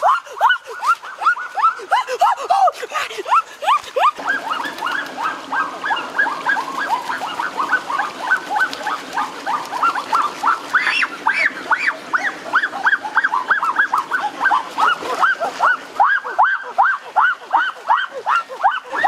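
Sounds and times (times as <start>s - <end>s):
stream water rushing: 0.0s - 19.0s
ducks calling: 4.2s - 19.0s.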